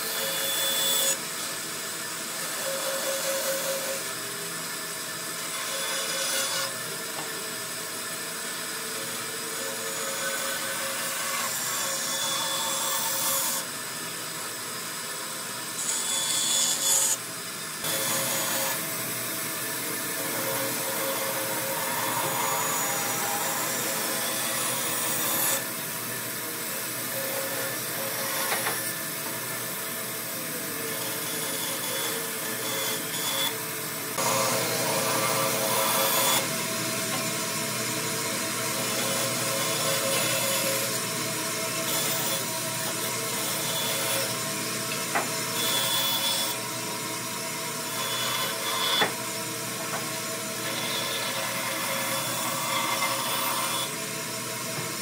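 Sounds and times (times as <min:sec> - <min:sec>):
woodworking tool grating on wood: 0:05.4 - 0:07.2, 0:17.8 - 0:19.0, 0:20.0 - 0:25.7, 0:26.9 - 0:29.2, 0:30.6 - 0:33.6, 0:34.2 - 0:36.6, 0:38.6 - 0:46.6, 0:50.6 - 0:54.0.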